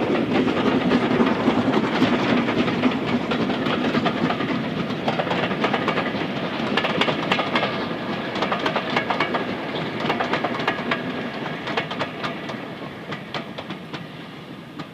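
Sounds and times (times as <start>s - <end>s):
train rumble: 0.0s - 14.9s
train wheels clicking over rail joints: 0.0s - 14.9s.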